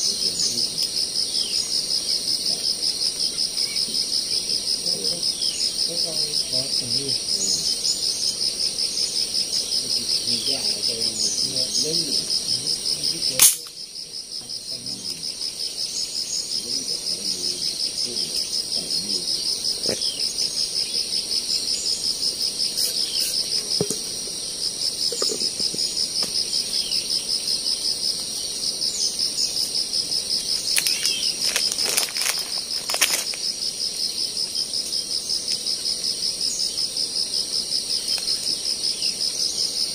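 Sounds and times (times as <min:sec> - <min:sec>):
insects trilling chorus: 0:00.0 - 0:39.9
sharp snap: 0:13.4 - 0:13.8
faint bird chirps: 0:14.4 - 0:23.5.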